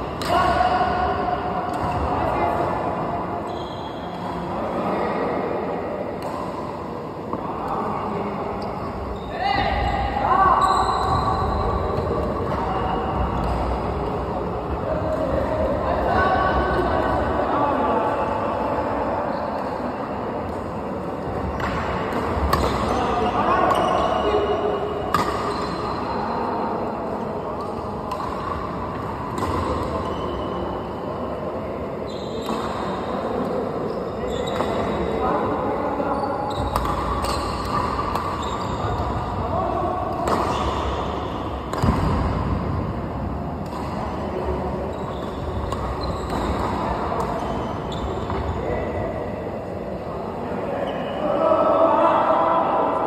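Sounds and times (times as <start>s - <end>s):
steady background noise: 0.0s - 53.0s
shoe squeaks: 3.5s - 4.2s, 10.3s - 13.1s, 22.5s - 24.6s, 25.4s - 26.4s, 29.9s - 30.6s, 32.1s - 32.6s, 33.9s - 35.2s, 36.0s - 39.2s, 44.9s - 46.8s, 47.4s - 48.8s
racket striking shuttlecock: 36.7s - 39.2s, 40.1s - 40.8s, 41.6s - 42.3s.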